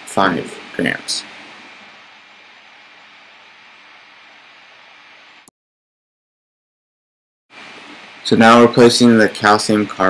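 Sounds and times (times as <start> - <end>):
faint room noise hiss: 0.0 - 5.5, 7.5 - 10.0.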